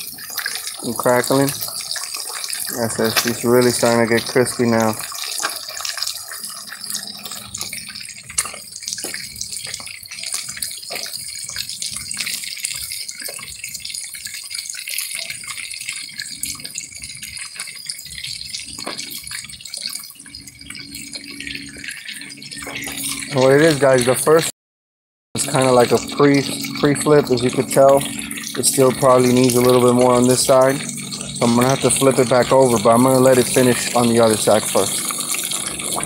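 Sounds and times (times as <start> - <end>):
fish frying in oil: 0.0 - 24.5, 25.4 - 36.0.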